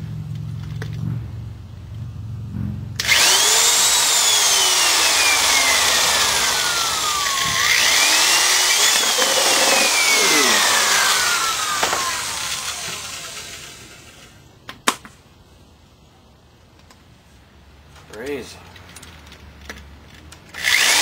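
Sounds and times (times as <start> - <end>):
electric drill boring through metal: 3.0 - 14.3, 20.6 - 21.0.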